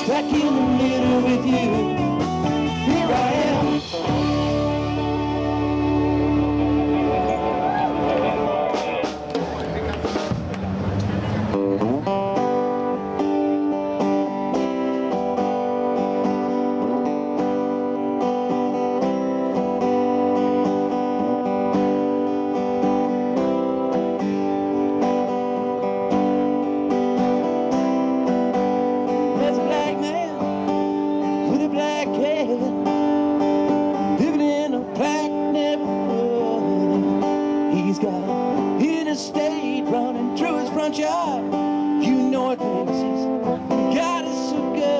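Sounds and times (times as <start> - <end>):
man singing: 0.0 - 4.8, 29.3 - 44.9
live band playing: 0.0 - 44.9.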